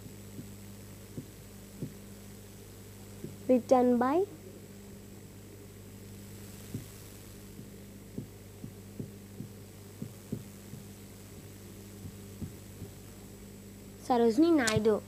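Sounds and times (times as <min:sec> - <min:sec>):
low electrical hum: 0:00.0 - 0:15.0
soft dull knocks: 0:07.6 - 0:13.0.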